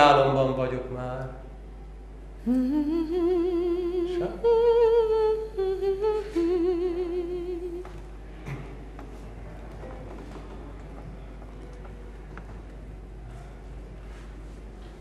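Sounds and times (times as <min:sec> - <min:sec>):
man humming: 0:02.4 - 0:07.8.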